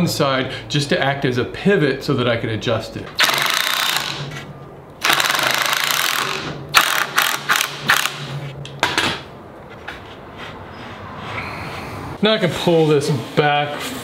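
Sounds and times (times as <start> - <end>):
cordless drill driving screw: 3.2 - 4.3, 5.0 - 8.2.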